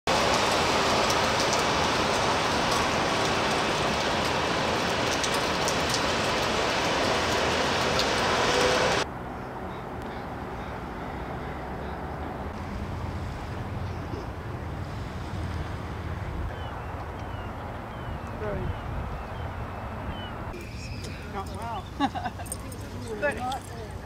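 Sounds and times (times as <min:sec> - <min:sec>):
raindrops ticking: 0:00.1 - 0:08.7
rain hiss: 0:00.1 - 0:09.0
low outdoor rumble: 0:00.1 - 0:24.0.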